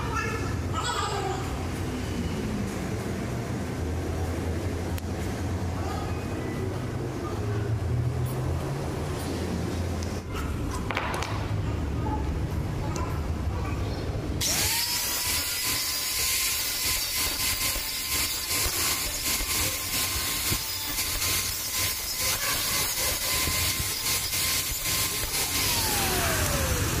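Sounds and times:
angle grinder grinding steel: 14.4 - 27.0.

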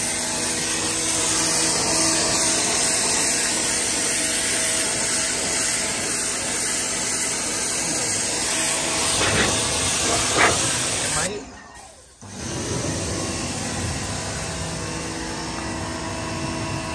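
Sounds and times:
pressure washer jet hissing: 2.4 - 11.4
machine humming: 7.8 - 16.9.

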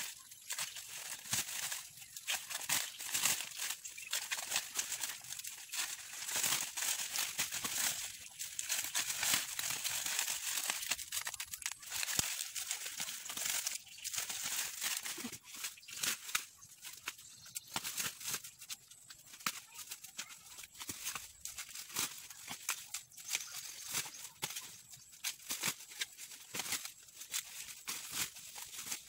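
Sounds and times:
dry corn leaves rustling: 0.0 - 29.0.

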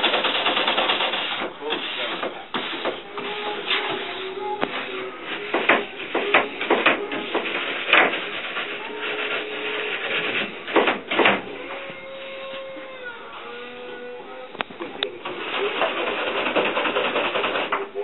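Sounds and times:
wax brush scrubbing ski base: 1.0 - 10.6.

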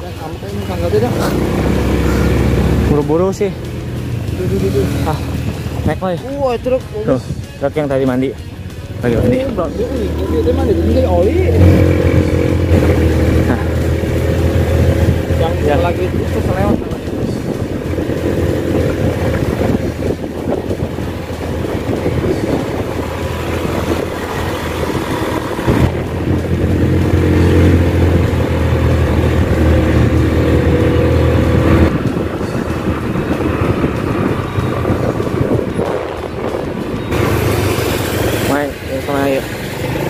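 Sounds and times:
motorcycle engine running: 0.0 - 40.0
road noise: 0.0 - 40.0
wind noise: 10.4 - 38.5.

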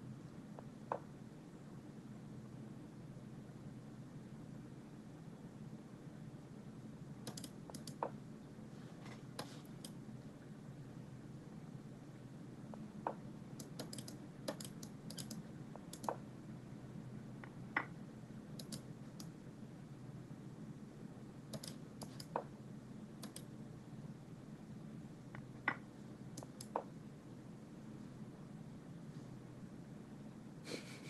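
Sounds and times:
steady low hum: 0.0 - 31.0
computer mouse clicks: 7.2 - 8.2, 9.3 - 10.0, 13.1 - 16.2, 18.5 - 19.4, 21.5 - 22.5, 23.2 - 23.5, 25.7 - 26.9.

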